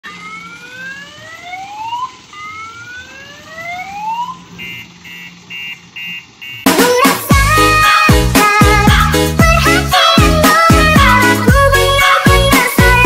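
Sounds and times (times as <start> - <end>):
electronic siren whoops: 0.0 - 6.7
short electronic beeps: 4.5 - 6.7.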